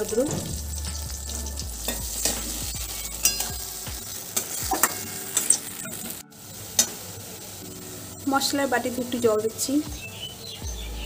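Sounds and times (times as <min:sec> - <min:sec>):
oil sizzling: 0:00.0 - 0:11.0
spatula scraping in wok: 0:00.4 - 0:07.6.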